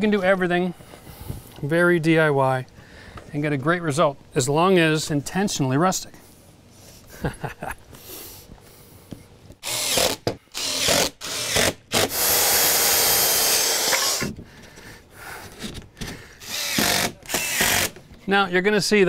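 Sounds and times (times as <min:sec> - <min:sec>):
impact driver driving screws: 0:09.6 - 0:14.4, 0:16.4 - 0:18.0.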